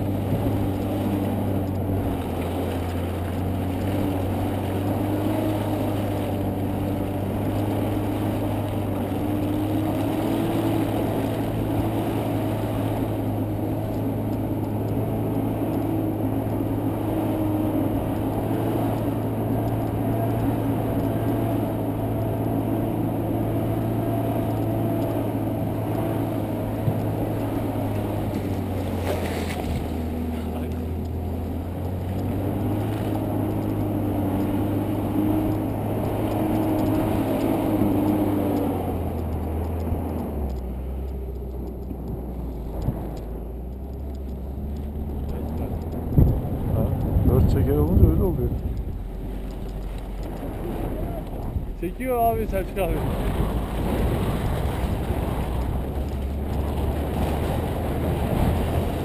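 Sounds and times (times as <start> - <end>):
off-road vehicle engine running: 0.0 - 59.0.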